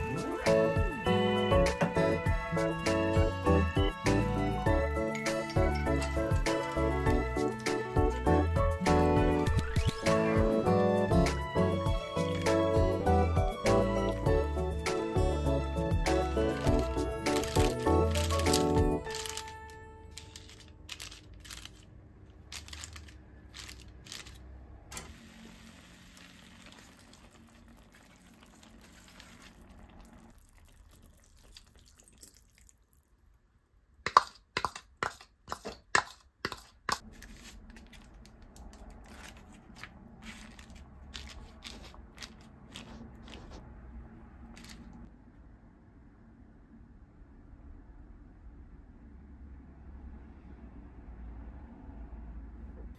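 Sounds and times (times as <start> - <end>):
food simmering in a pan: 25.1 - 33.4.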